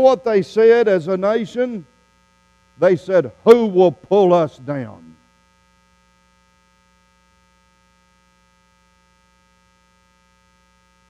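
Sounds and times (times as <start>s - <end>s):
faint electrical mains hum: 0.0s - 11.0s.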